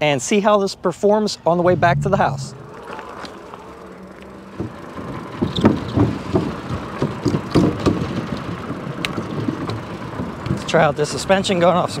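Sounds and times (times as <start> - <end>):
bike rattling on bridge deck: 3.8 - 12.0.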